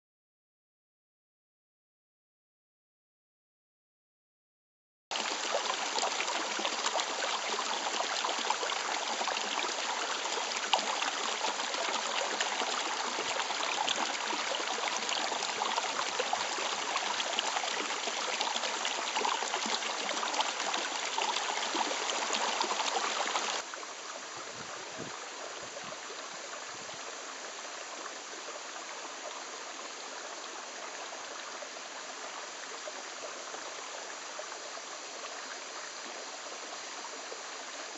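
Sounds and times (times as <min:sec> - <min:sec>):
water gushing over stones: 0:05.1 - 0:23.7
shallow stream purling: 0:05.1 - 0:37.9.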